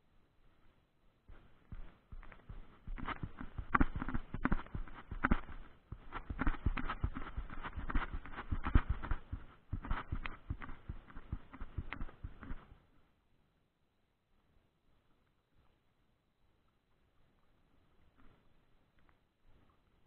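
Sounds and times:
hooves clattering on ground: 0:01.3 - 0:12.7.

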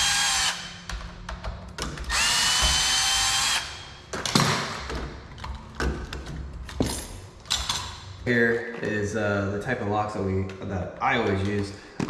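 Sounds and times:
cordless drill whining: 0:00.0 - 0:00.8, 0:02.1 - 0:04.0.

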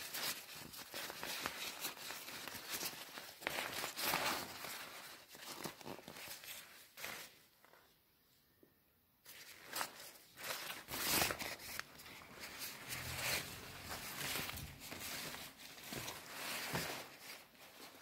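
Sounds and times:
plastic coat crinkling: 0:09.3 - 0:18.0.

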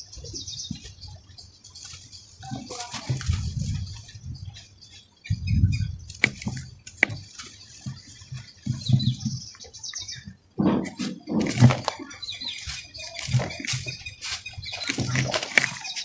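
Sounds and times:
dirt clumps crumbled by hand: 0:01.8 - 0:04.2, 0:06.0 - 0:16.0.

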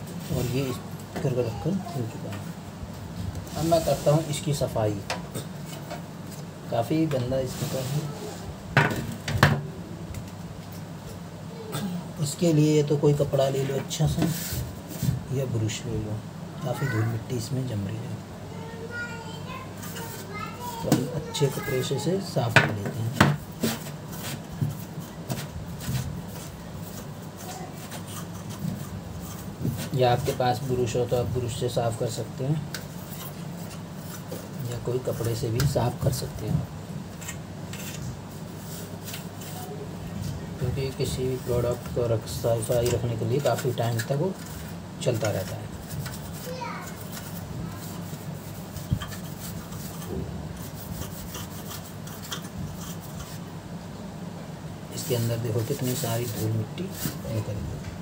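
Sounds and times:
steady low hum: 0:00.0 - 0:58.0
scratchy scrubbing strokes: 0:03.5 - 0:04.3, 0:42.5 - 0:53.5, 0:55.0 - 0:57.5
cloth rubbing: 0:03.5 - 0:04.5.

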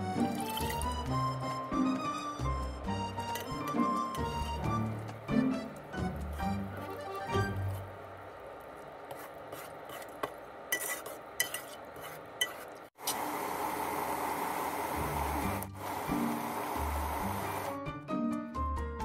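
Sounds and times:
syrup boiling with bubbling hiss: 0:00.0 - 0:17.8
metal spoon stirring sugar: 0:00.2 - 0:02.3, 0:03.1 - 0:04.6, 0:09.0 - 0:12.9.

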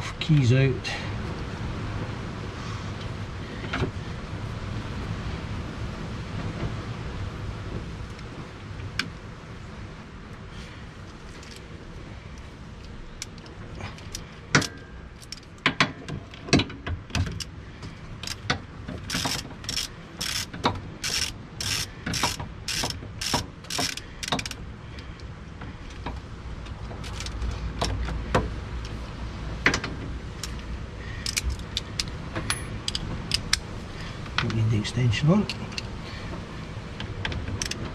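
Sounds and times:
ratchet clicking: 0:18.2 - 0:18.4, 0:19.0 - 0:24.6, 0:27.0 - 0:27.5, 0:31.2 - 0:33.7, 0:37.6 - 0:37.8
metal clinks: 0:31.3 - 0:33.0.

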